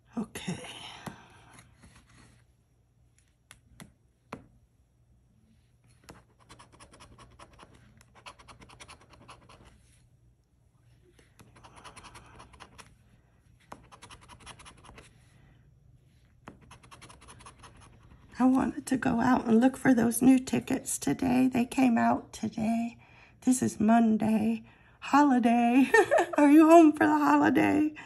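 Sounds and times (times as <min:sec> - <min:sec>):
coin scraping scratch card: 0:06.1 - 0:09.7.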